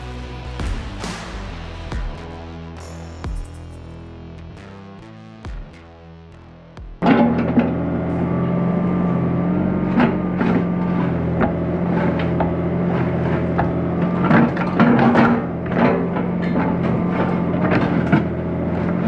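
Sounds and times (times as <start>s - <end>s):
excavator diesel engine running: 7.0s - 19.0s
bucket scraping through rubble: 9.8s - 19.0s.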